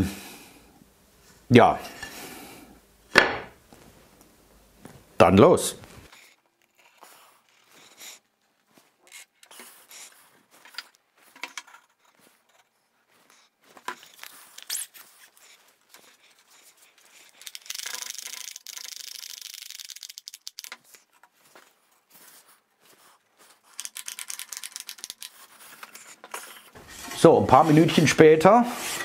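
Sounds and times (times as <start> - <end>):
wooden frame strips knocking: 3.2 - 3.5.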